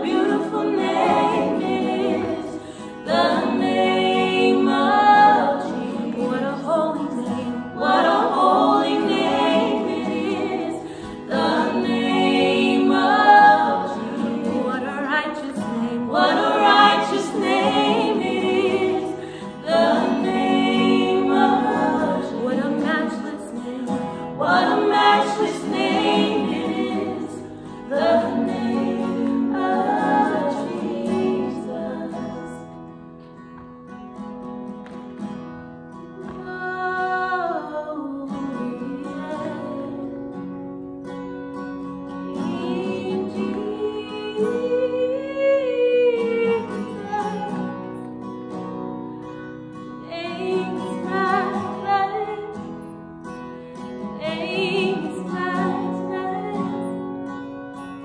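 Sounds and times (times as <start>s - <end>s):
group singing worship chorus: 0.0s - 33.0s, 42.1s - 48.6s, 50.0s - 52.8s, 53.8s - 57.4s
acoustic guitar: 0.0s - 58.0s.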